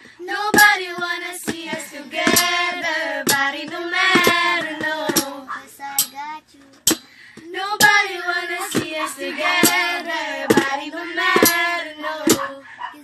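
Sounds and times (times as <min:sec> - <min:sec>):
girls singing together: 0:00.0 - 0:06.2, 0:06.8 - 0:13.0
hand-struck beat: 0:00.0 - 0:12.5.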